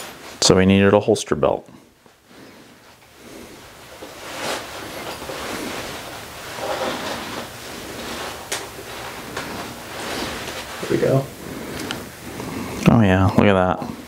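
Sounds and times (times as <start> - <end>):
clothing rustling: 0.0 - 0.8, 1.8 - 12.8
leather belt pulled through loops: 4.0 - 10.8.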